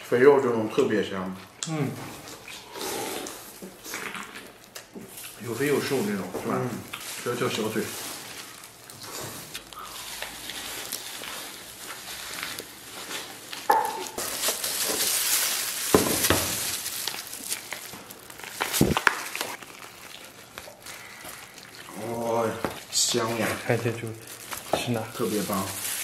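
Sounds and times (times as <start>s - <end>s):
roast meat tearing and crackling: 6.9s - 26.0s.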